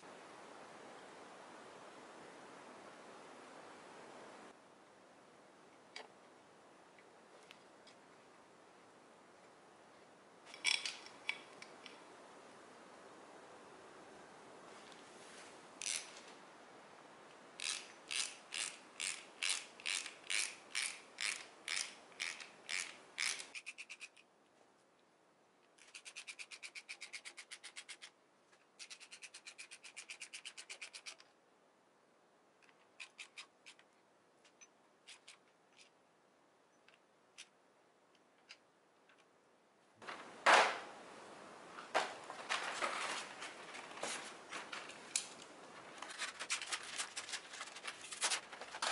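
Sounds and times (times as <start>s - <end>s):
socket ratchet clicking: 15.8s - 16.1s, 17.6s - 24.2s.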